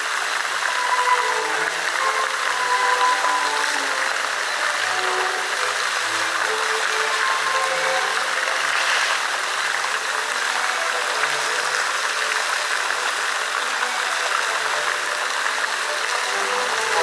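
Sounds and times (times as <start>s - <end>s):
faint music from loudspeakers: 0.0s - 17.0s
fountain water splashing: 0.0s - 17.0s.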